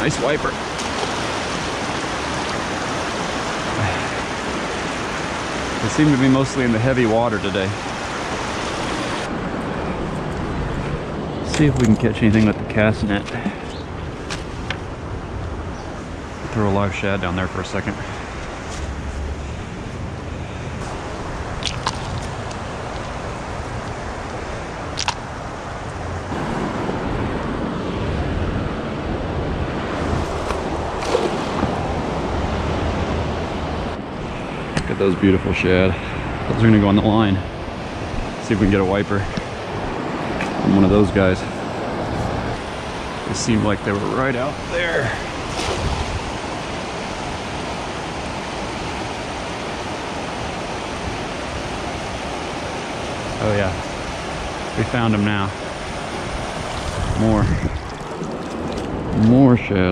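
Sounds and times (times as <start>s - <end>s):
river water rushing through rapids: 0.0s - 6.8s, 7.4s - 9.3s
water rushing over rapids: 0.0s - 10.0s, 36.5s - 59.7s.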